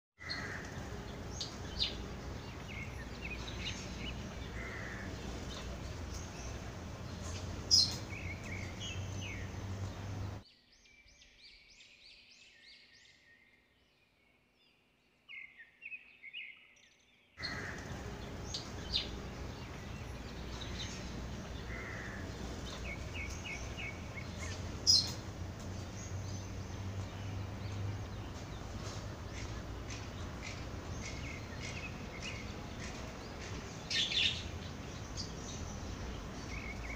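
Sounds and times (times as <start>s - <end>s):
outdoor background noise: 0.2s - 36.9s
small birds chirping: 0.2s - 36.9s.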